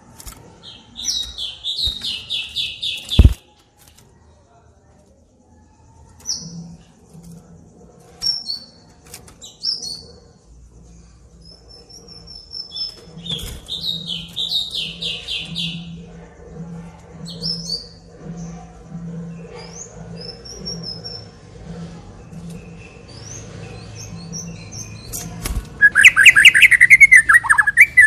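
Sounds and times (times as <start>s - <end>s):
sharp bird clicks: 1.1s - 3.6s, 25.0s - 28.0s
bird singing whistled notes: 25.8s - 28.0s.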